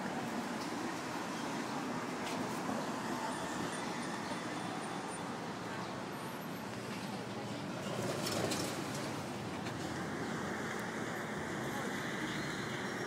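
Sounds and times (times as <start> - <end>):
hum of passing traffic: 0.0 - 13.0.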